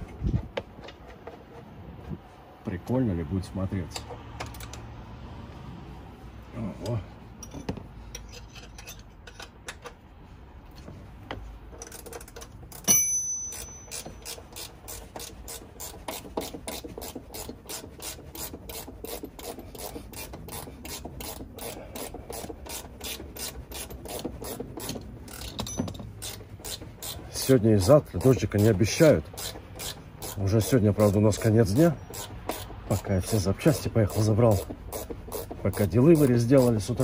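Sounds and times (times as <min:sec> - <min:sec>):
hand ratchet clicking: 0:11.7 - 0:37.0
sharp metallic clank: 0:12.8 - 0:14.4.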